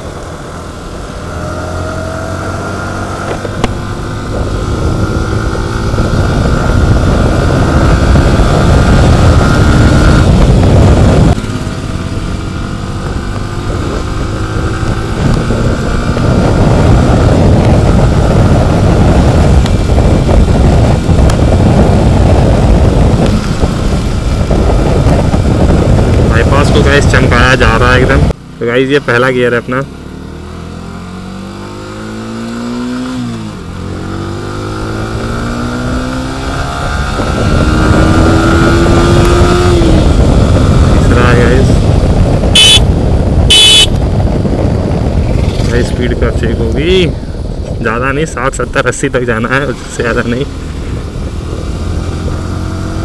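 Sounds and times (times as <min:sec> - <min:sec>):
wind rush on microphone: 0:00.0 - 0:28.4, 0:30.3 - 0:53.0
motorcycle engine revving: 0:00.0 - 0:47.7, 0:49.1 - 0:53.0.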